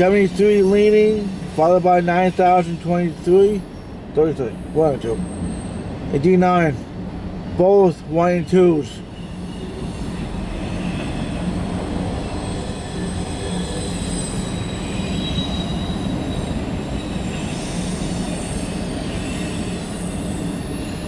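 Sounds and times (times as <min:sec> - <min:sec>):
faint high wheel squeal: 0:00.0 - 0:06.0, 0:07.5 - 0:21.0
train wheels rumbling on rail: 0:00.0 - 0:21.0.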